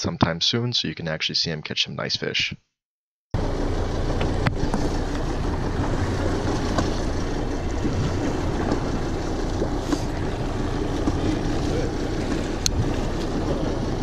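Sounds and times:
low rumble of wind and sea: 3.4s - 14.0s.

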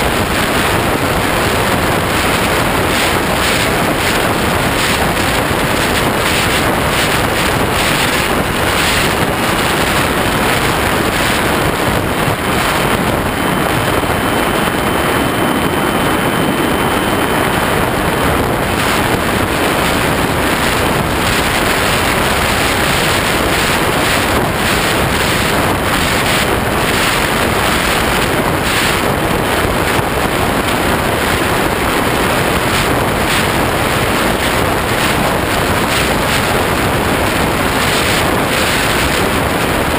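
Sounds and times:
faint high fan whine: 0.0s - 39.9s
wind rush: 0.0s - 39.9s.

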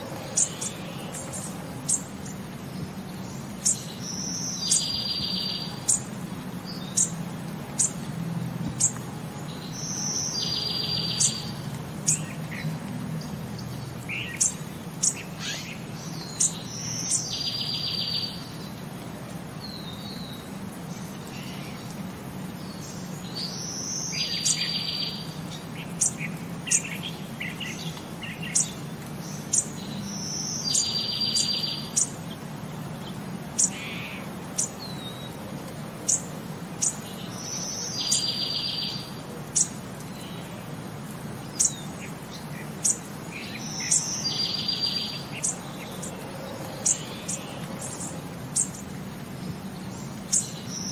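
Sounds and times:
bird chirps: 9.6s - 12.6s, 41.5s - 48.9s.

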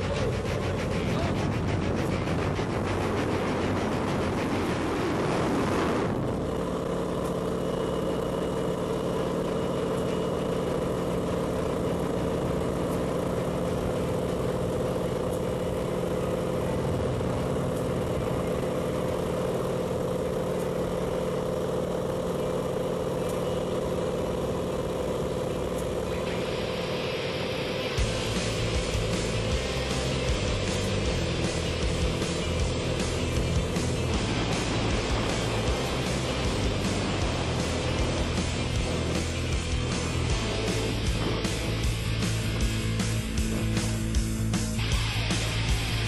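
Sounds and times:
rush of air: 0.0s - 7.1s
light aircraft engine droning: 0.0s - 46.0s.

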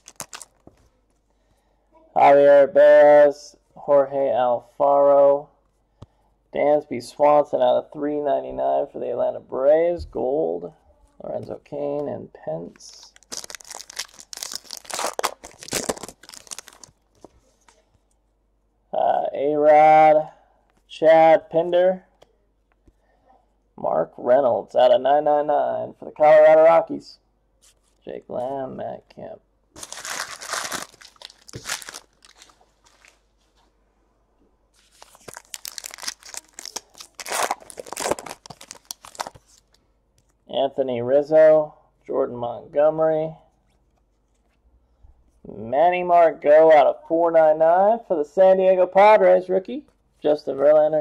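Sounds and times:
foil wrapper tearing and crinkling: 0.0s - 0.6s, 13.1s - 17.0s, 29.8s - 33.2s, 34.8s - 39.6s.

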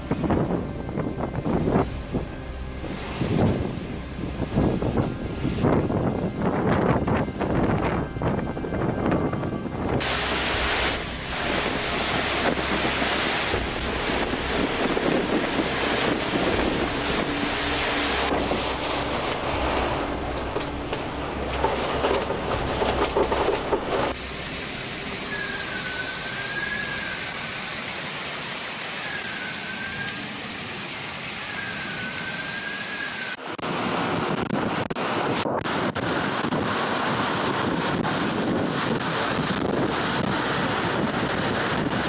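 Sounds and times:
faint wavering wind whistle: 0.0s - 18.4s, 24.1s - 42.0s
wind gusts buffeting microphone: 0.0s - 18.7s, 33.3s - 42.0s.

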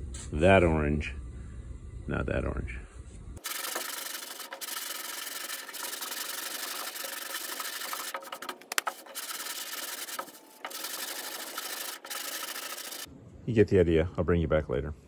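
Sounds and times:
hand sanding with a sanding block: 3.4s - 13.1s.

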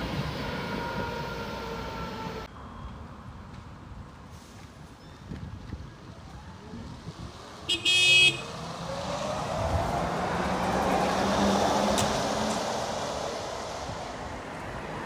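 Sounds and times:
trolleybus horn toot: 0.5s - 2.5s, 7.7s - 8.5s.

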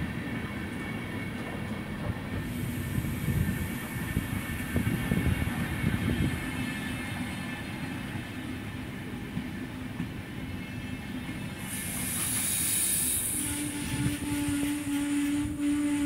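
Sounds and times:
train wheels rumbling on rails: 0.0s - 16.0s
high hiss: 11.5s - 14.9s.

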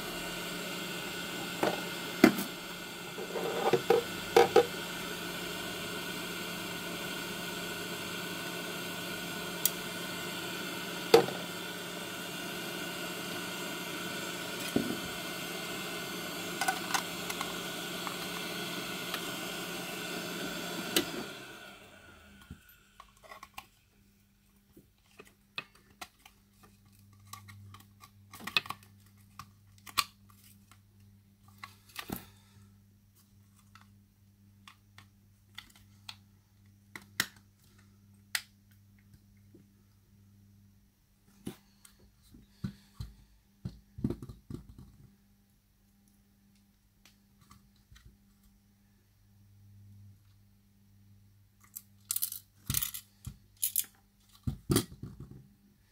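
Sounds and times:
blower fan whirring: 0.0s - 23.5s.

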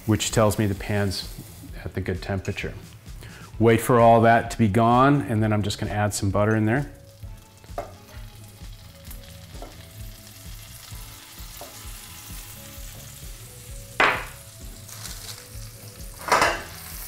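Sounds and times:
butter sizzling in a pan: 0.0s - 2.1s, 5.6s - 17.0s.

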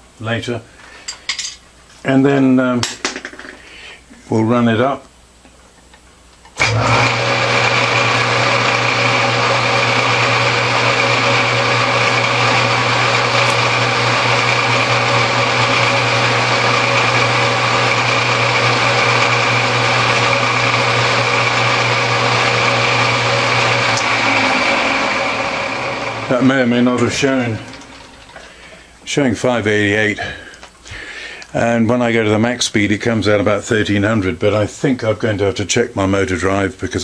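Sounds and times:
lathe motor hum and whine: 6.6s - 28.5s.

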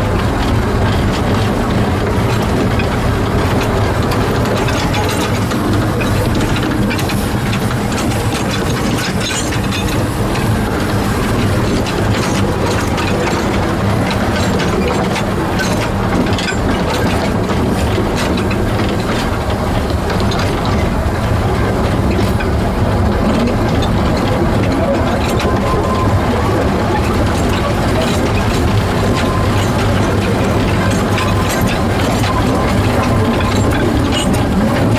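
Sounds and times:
steam train rumble: 0.0s - 34.9s
wheels clattering on rails: 0.0s - 34.9s.

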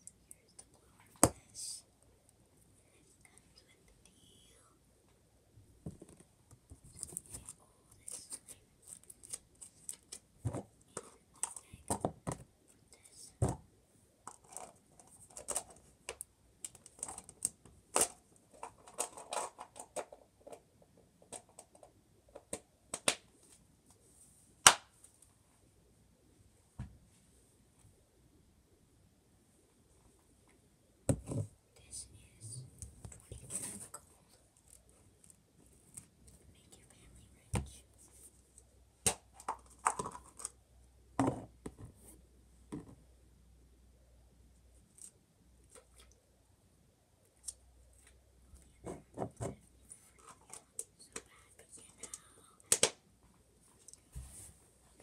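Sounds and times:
plastic capsule clicks and scrapes: 14.3s - 15.8s, 16.7s - 20.6s, 39.1s - 40.5s.

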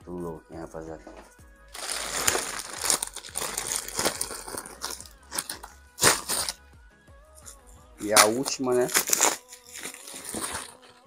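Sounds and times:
packaging wrapper crinkling: 1.8s - 6.6s, 8.1s - 11.0s.

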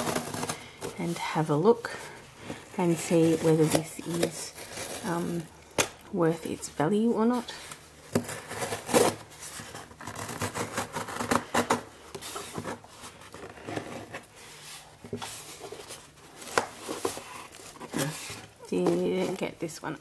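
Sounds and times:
scissors scraping packing tape: 8.2s - 12.6s.

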